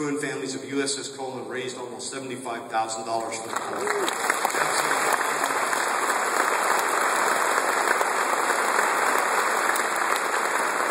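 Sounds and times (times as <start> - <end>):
audience applauding: 3.2 - 10.9.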